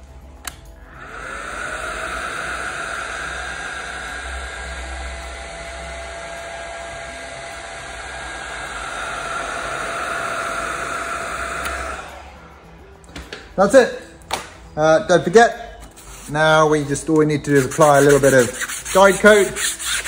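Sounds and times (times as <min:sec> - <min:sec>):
cooling fan hissing: 0:00.0 - 0:13.0.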